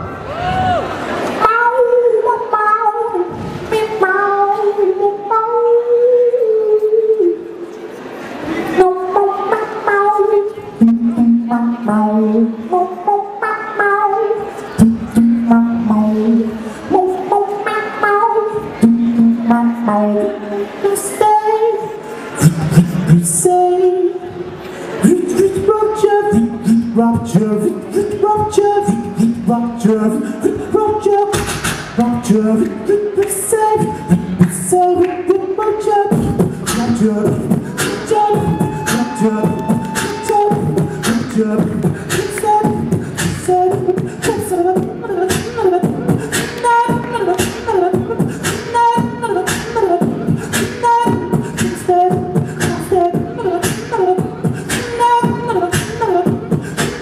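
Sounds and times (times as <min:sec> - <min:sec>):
higher pitched vocal melody: 0:08.6 - 0:57.0
beatboxing kick and snare: 0:30.5 - 0:35.4, 0:36.1 - 0:57.0.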